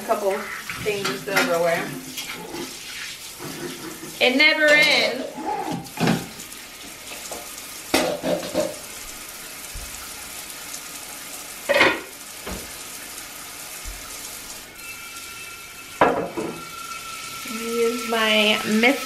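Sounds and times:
faucet running into sink: 0.0s - 19.0s
dishes clattering: 0.6s - 2.7s, 3.4s - 6.3s, 7.1s - 8.8s, 11.7s - 12.6s, 16.0s - 16.8s.

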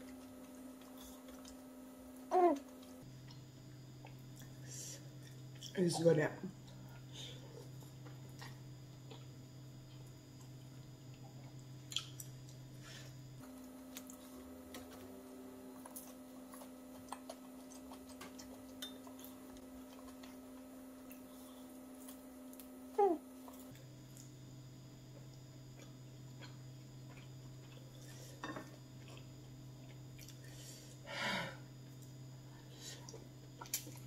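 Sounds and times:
slurping and chewing: 15.9s - 21.4s.

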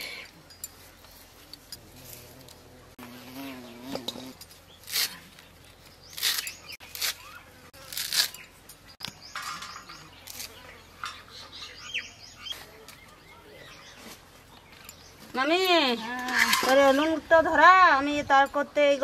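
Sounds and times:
birds chirping: 2.8s - 17.2s
blade slicing herb stems: 3.9s - 5.4s, 6.1s - 8.4s.

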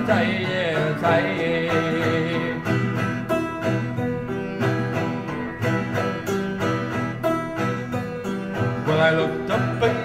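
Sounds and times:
acoustic guitar strumming: 0.0s - 10.0s.

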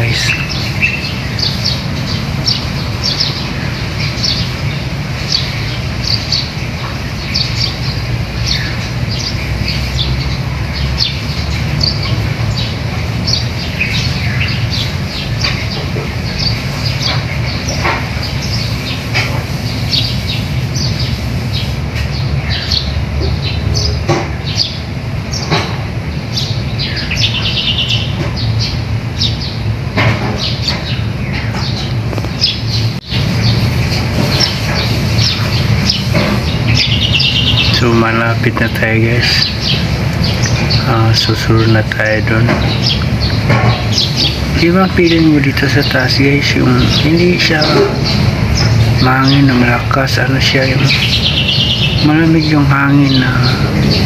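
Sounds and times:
small birds chirping: 0.0s - 54.0s
steady low rumble: 30.6s - 54.0s.

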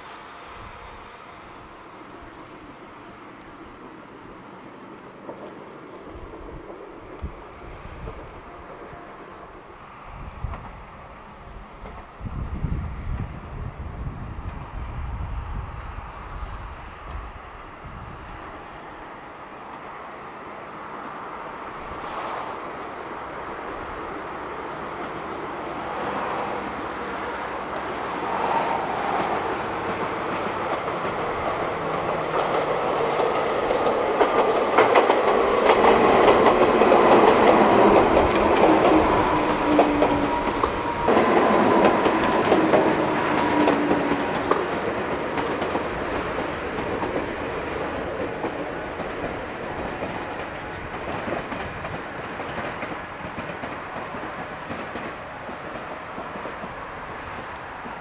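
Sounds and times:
faint train motor whine: 0.0s - 22.3s
train wheels clacking: 21.9s - 58.0s.

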